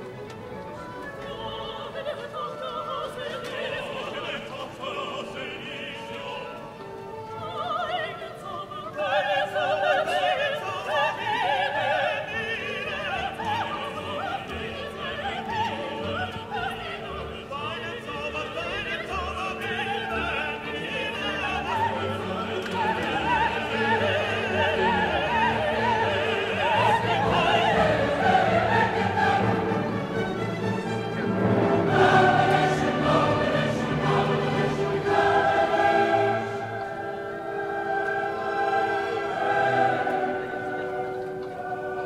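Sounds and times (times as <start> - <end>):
operatic singing: 0.0 - 42.0
orchestra playing: 9.6 - 42.0.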